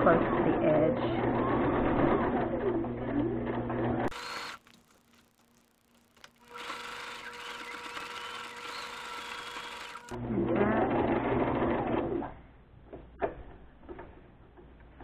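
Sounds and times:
sewing machine running: 1.2s - 12.2s.

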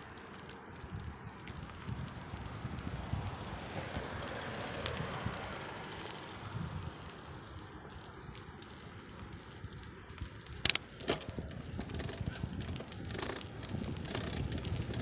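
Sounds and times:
bicycle tyres rolling on path: 0.0s - 15.0s
small rattles: 7.0s - 15.0s.

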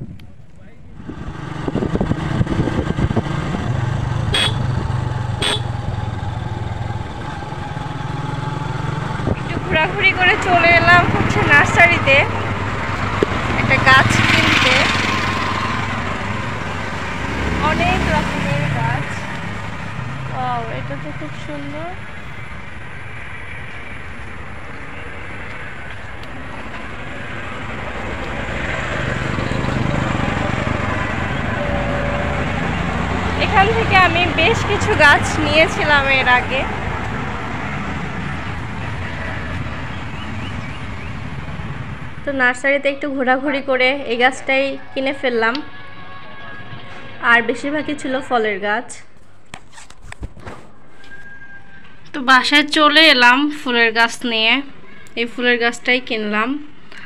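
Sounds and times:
outdoor rumbling noise: 0.0s - 56.8s
motorcycle engine running: 1.0s - 23.0s.

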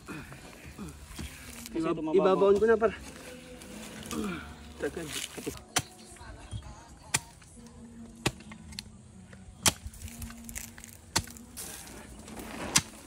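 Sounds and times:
digging tool chopping hard soil: 9.6s - 10.1s, 12.5s - 13.0s.

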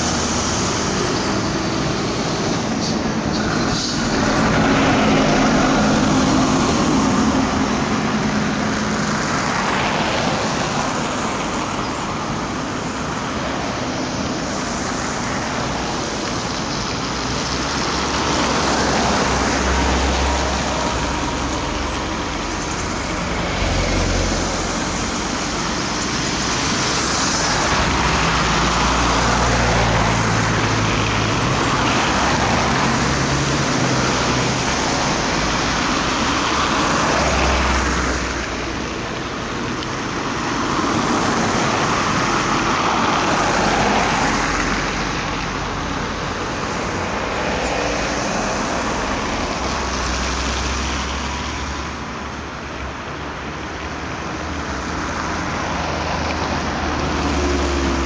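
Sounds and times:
vehicles passing on slushy road: 0.0s - 58.0s.

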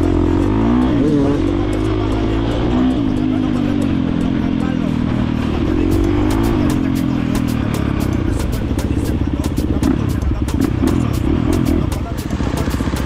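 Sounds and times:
dirt bike engine: 0.0s - 13.0s.

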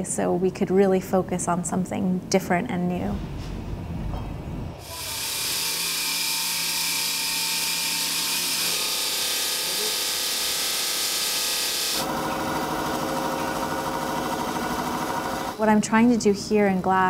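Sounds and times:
diamond saw cutting glass: 4.8s - 15.6s
grinding wheel whirring: 4.8s - 15.6s.

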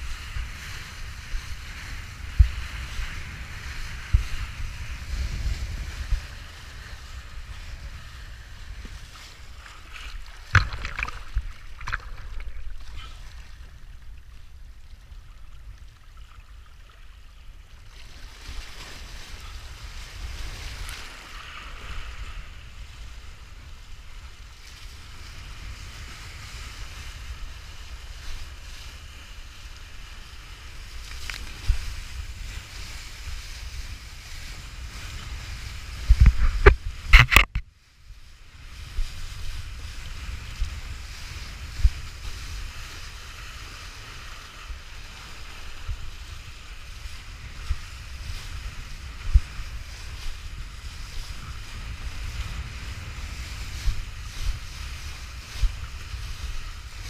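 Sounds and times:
wind buffeting microphone: 0.0s - 16.0s, 18.4s - 57.0s
water rushing and spraying: 4.0s - 17.3s
board slapping on water: 8.8s - 13.2s, 36.1s - 37.6s.

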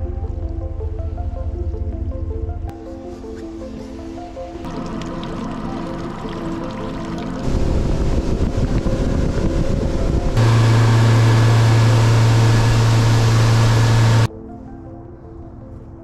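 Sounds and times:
outboard motor running: 7.4s - 14.3s.

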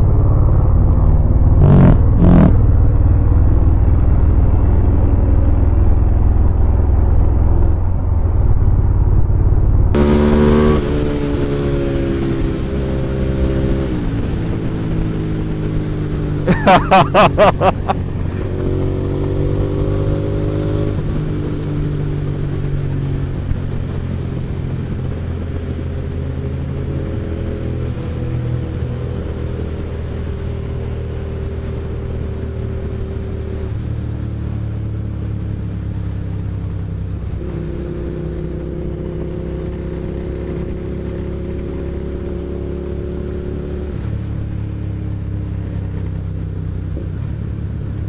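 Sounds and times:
motorcycle engine running: 0.0s - 28.6s.

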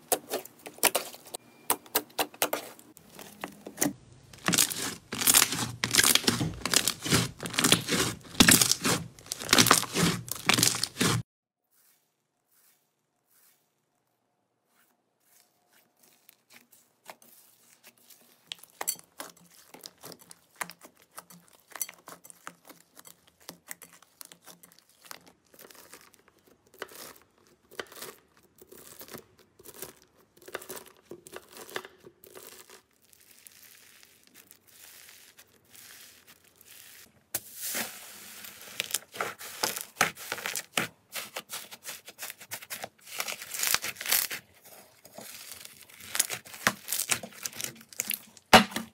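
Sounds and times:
knife slicing slime: 3.7s - 11.2s, 37.4s - 48.9s
slime crackling and popping: 4.3s - 11.2s, 16.0s - 37.1s, 38.5s - 48.9s.

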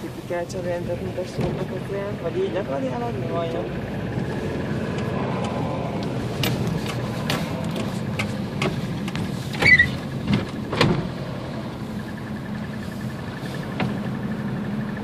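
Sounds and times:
car engine and tyre noise: 0.0s - 15.0s
short squeak: 9.6s - 10.0s.

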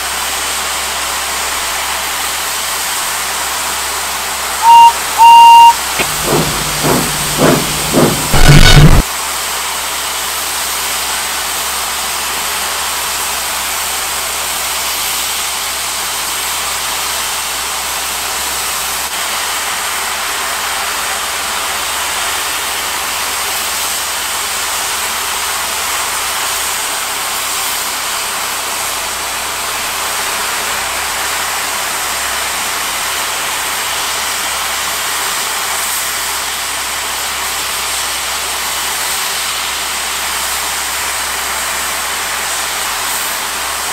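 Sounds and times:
steam hissing: 6.0s - 9.0s.

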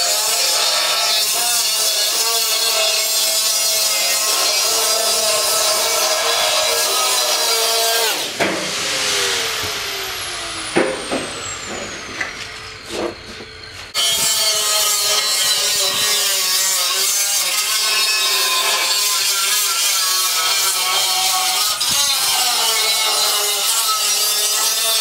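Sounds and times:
angle grinder cutting steel drum: 0.0s - 25.0s
angle grinder whine: 2.4s - 17.1s.

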